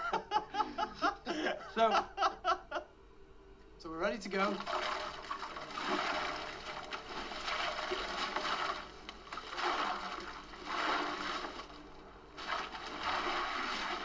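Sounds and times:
ice cubes rattling and splashing: 4.5 - 14.0.

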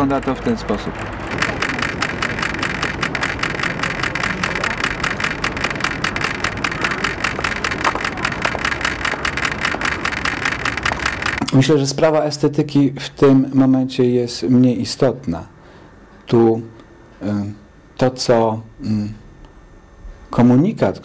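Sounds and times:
mechanism clicking rattle: 0.9 - 11.7.

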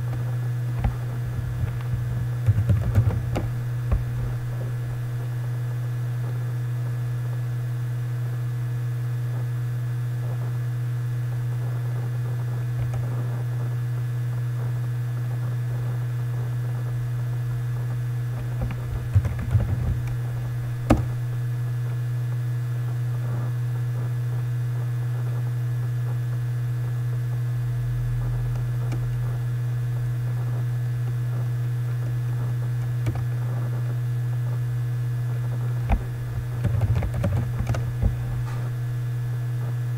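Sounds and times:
low electrical hum: 0.0 - 39.9
computer keyboard keystrokes: 0.8 - 5.3, 18.4 - 21.3, 32.8 - 33.3, 35.9 - 38.4.

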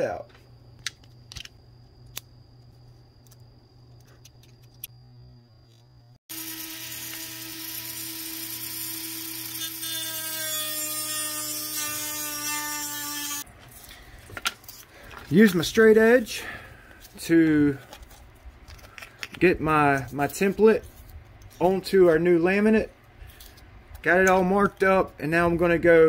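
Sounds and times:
rotary tool cutting fiberglass: 6.3 - 13.4.

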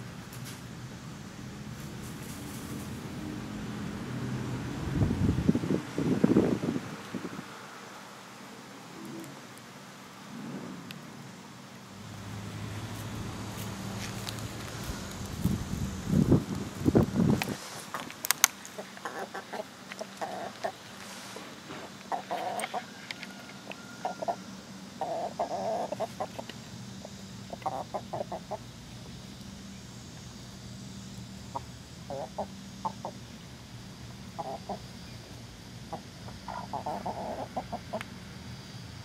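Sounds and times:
low steady hum: 0.0 - 39.0
hens clucking: 18.7 - 28.7, 31.5 - 33.2, 34.3 - 35.0, 35.9 - 38.1.

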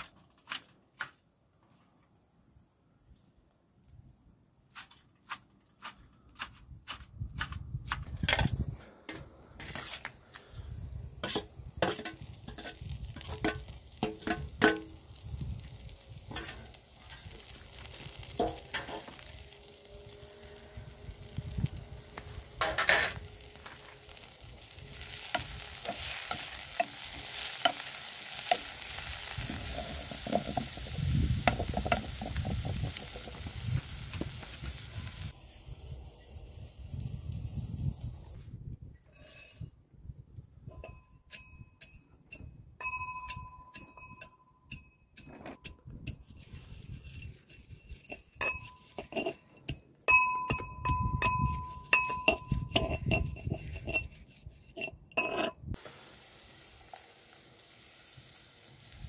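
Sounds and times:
greens sizzling in a pan: 11.0 - 38.4, 55.8 - 59.0.

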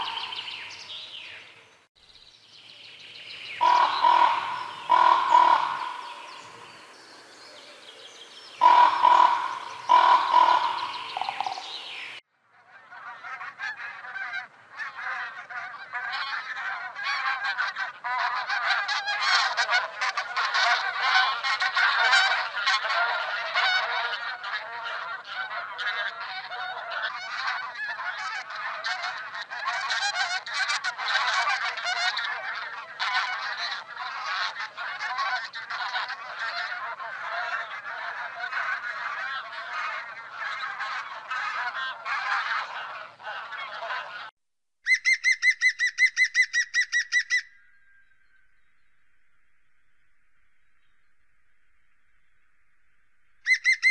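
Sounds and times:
geese honking: 0.0 - 0.9, 3.4 - 7.0, 8.6 - 12.2, 12.8 - 44.3, 53.5 - 53.9.

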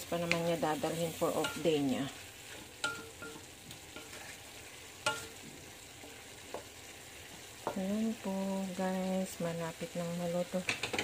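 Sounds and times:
spatula stirring food in wok: 0.0 - 8.3
faint sizzle: 0.0 - 11.0.

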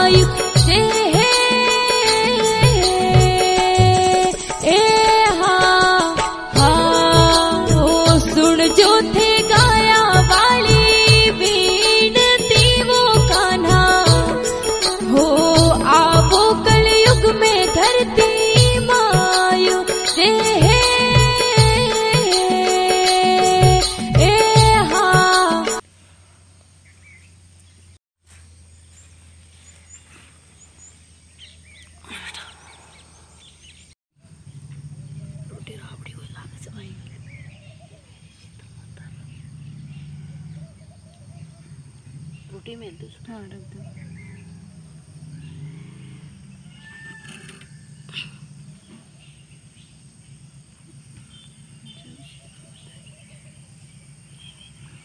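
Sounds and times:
small birds chirping: 26.0 - 55.0
low drawn-out animal call: 34.2 - 42.6, 43.6 - 50.0.

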